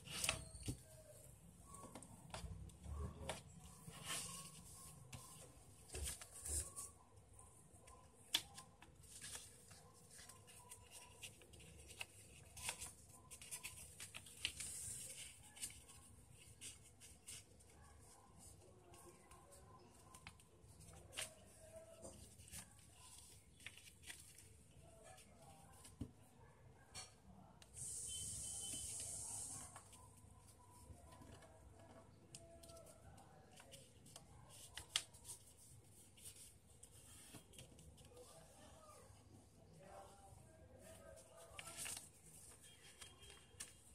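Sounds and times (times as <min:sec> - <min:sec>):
paper being folded: 0:07.8 - 0:26.0, 0:28.9 - 0:38.7, 0:40.8 - 0:43.9
sharp paper crackle: 0:41.2 - 0:43.9.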